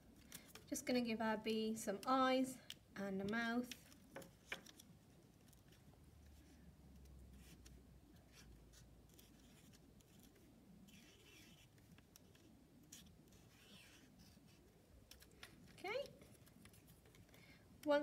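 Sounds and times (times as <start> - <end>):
marker scratching on card: 7.3 - 14.7.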